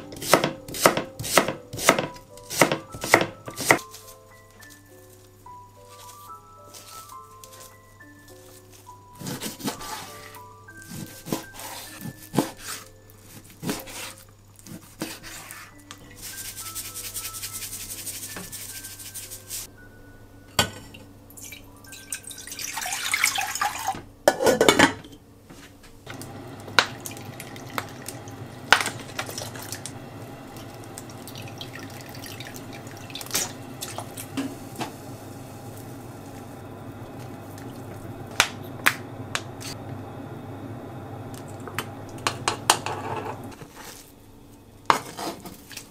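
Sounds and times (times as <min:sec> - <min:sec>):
knife chopping on cutting board: 0:00.0 - 0:03.8
water filling a saucepan: 0:21.4 - 0:24.0, 0:26.1 - 0:39.9, 0:41.2 - 0:43.6
gas burner hiss: 0:26.1 - 0:43.6.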